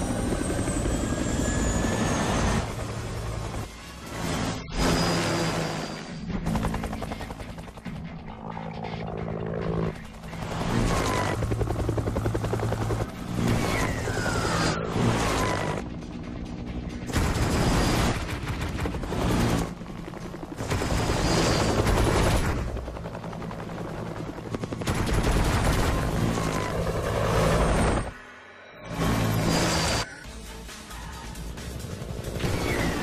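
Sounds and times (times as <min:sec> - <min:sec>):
helicopter rotor chop: 0:00.0 - 0:28.2, 0:31.3 - 0:33.0
music: 0:06.1 - 0:13.2, 0:13.9 - 0:22.3, 0:28.4 - 0:33.0.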